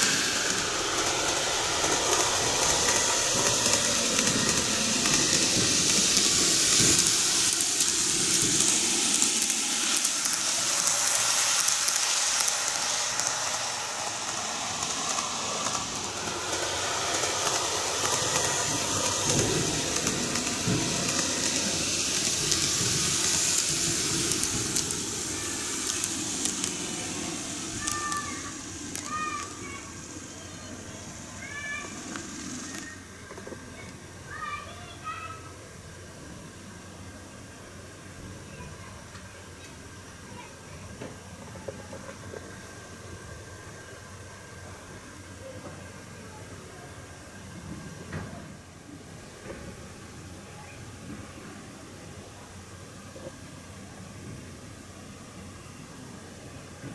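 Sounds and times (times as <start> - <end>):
model train motor whirring: 0.0 - 56.9.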